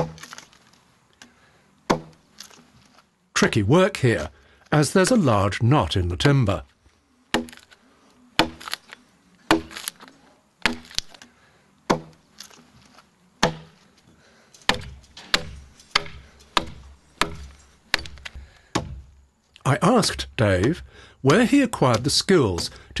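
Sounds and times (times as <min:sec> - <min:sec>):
adze chopping timber: 0:00.0 - 0:00.4, 0:01.8 - 0:02.6, 0:07.3 - 0:07.7, 0:08.4 - 0:08.8, 0:09.4 - 0:10.0, 0:10.6 - 0:12.3, 0:13.4 - 0:13.8, 0:14.6 - 0:23.0.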